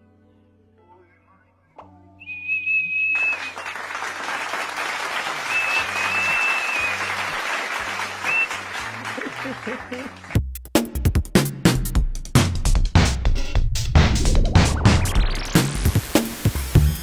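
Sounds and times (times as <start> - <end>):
shrill plastic whistle toots: 2.2 - 3.8, 5.5 - 7.2, 8.2 - 8.5
applause-like noise: 3.1 - 10.4
background music: 5.4 - 17.0.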